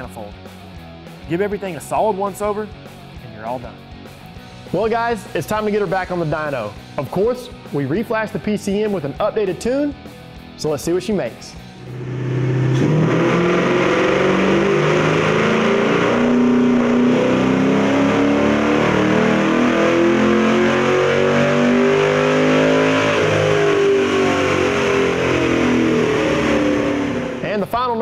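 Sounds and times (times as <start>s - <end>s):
car engine revving at full throttle: 11.7s - 27.6s.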